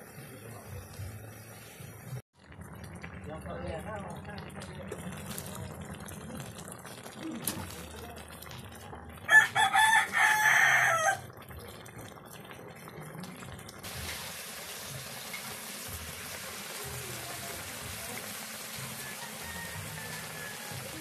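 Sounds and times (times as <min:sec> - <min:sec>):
broth boiling hard in a wok: 0:00.0 - 0:21.0
rooster crowing: 0:09.3 - 0:11.3, 0:18.8 - 0:21.0.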